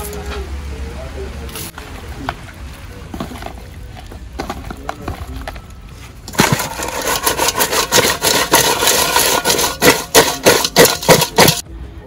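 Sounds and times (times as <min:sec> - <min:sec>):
hands working raw meat: 0:06.3 - 0:11.6
shells rattling in metal pot: 0:06.3 - 0:11.6.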